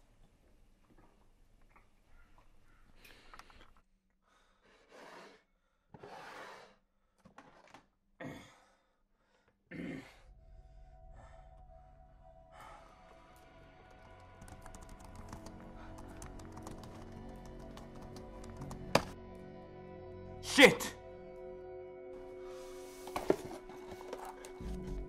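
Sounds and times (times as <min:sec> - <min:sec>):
person breathing heavily: 0:08.2 - 0:18.5
faint music with held tones: 0:10.3 - 0:25.0.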